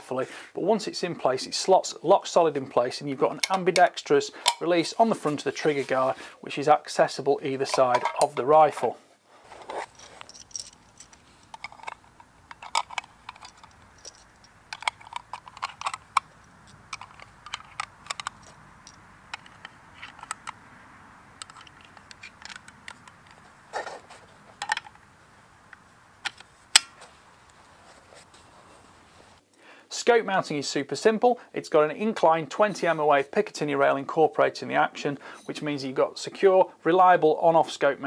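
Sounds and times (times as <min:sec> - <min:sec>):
cartridges clicking into magazine: 0:10.2 - 0:20.7, 0:21.3 - 0:23.4, 0:25.6 - 0:27.0
magazine clicking into rifle: 0:10.2 - 0:20.7, 0:21.3 - 0:23.8, 0:24.6 - 0:27.1.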